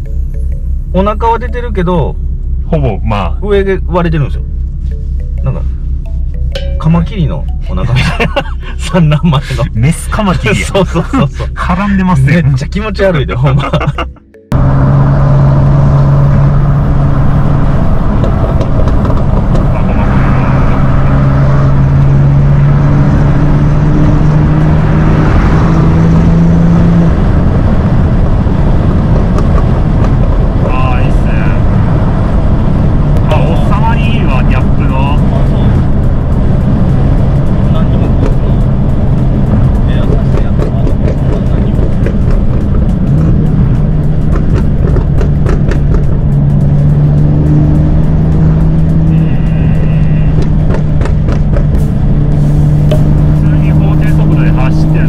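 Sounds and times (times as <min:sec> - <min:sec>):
background music: 0:00.0 - 0:15.2
car engine drone: 0:00.0 - 0:55.0.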